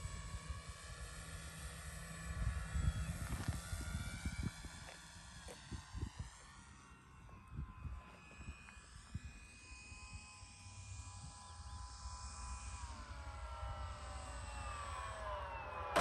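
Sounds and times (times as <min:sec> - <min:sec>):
model airplane motor whine: 0:00.0 - 0:16.0
wind rumble on microphone: 0:02.2 - 0:06.7, 0:07.3 - 0:10.3.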